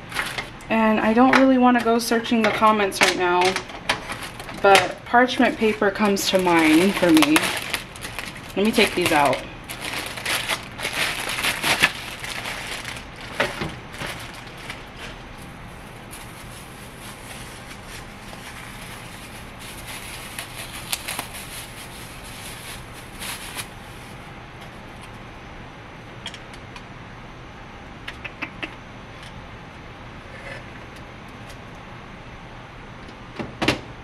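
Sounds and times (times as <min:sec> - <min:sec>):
plastic packaging crinkling: 0:00.0 - 0:00.6, 0:03.0 - 0:24.2
low fan hum: 0:00.0 - 0:34.0.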